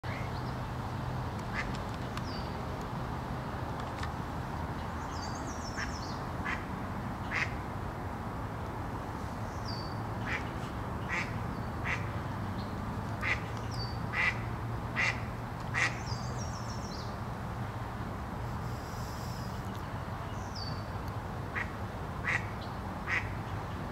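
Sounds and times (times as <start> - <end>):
duck quacking: 14.1 - 14.4, 15.0 - 15.2.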